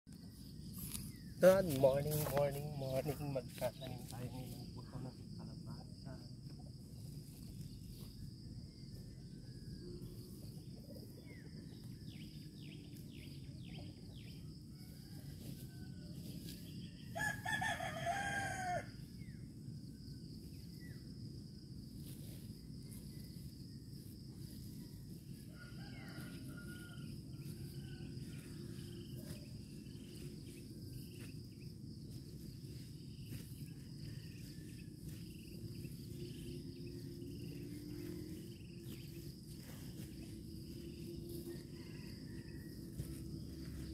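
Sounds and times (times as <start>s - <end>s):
high insect drone: 0.1s - 43.9s
rooster crowing: 17.0s - 19.3s, 25.4s - 30.0s, 33.6s - 43.9s.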